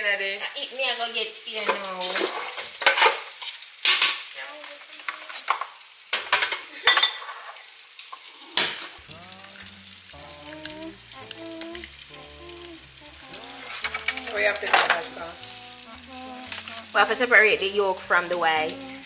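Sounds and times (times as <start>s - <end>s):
faint steady hiss: 0.0s - 19.0s
background music with bass line: 9.0s - 17.0s.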